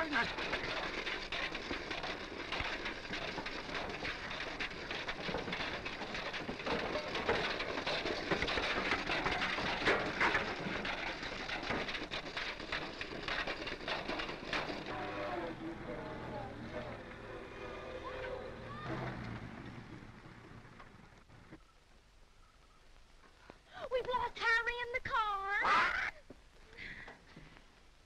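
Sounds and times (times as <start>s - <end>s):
pots and pans clanking: 0.0s - 15.2s
old car body rattling: 0.0s - 21.6s
film soundtrack hiss: 19.1s - 28.0s.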